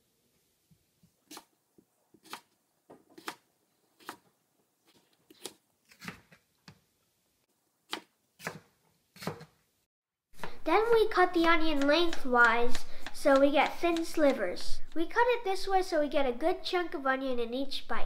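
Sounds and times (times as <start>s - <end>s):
knife chopping potato on board: 3.1s - 3.4s, 4.0s - 4.2s, 7.9s - 9.6s, 10.4s - 15.0s.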